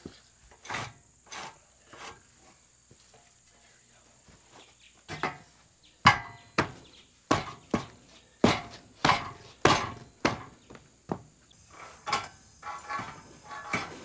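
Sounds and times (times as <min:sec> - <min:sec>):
sharp ringing knocks: 0:05.1 - 0:11.2.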